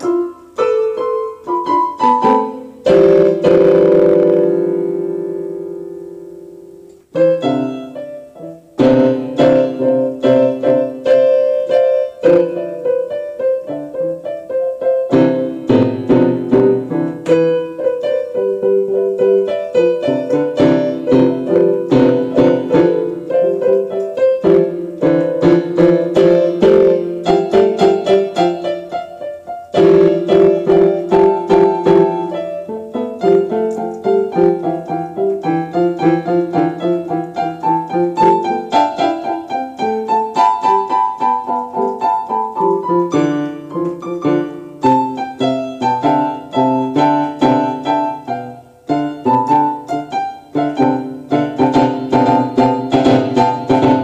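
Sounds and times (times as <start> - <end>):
piano playing quick notes: 0.0 - 54.0.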